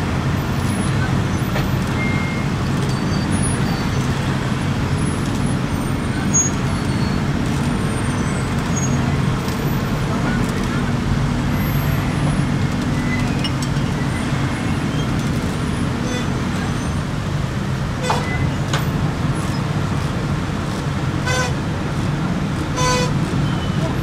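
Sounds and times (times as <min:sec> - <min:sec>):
heavy vehicle engines droning: 0:00.0 - 0:24.0
vehicle horn toot: 0:21.2 - 0:21.6, 0:22.8 - 0:23.9.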